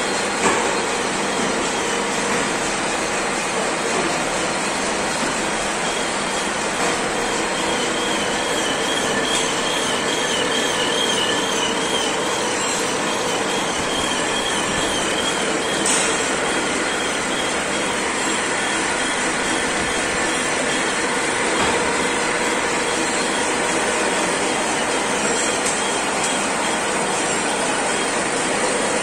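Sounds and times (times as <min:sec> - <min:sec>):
milling machine cutting metal: 0:07.9 - 0:29.0.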